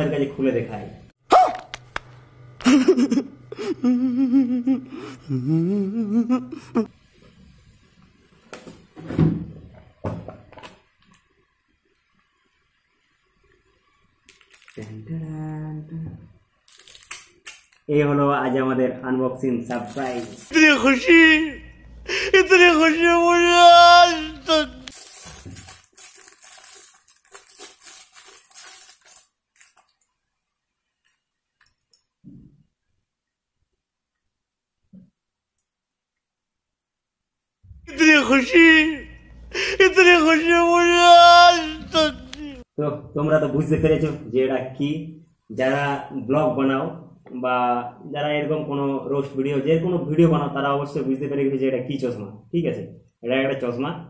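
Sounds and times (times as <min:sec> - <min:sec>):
man wailing: 0:03.7 - 0:06.9, 0:20.5 - 0:24.9, 0:37.9 - 0:42.6
plastic wrapper crinkling: 0:14.2 - 0:15.0, 0:16.6 - 0:17.9, 0:19.7 - 0:20.6, 0:24.8 - 0:30.2.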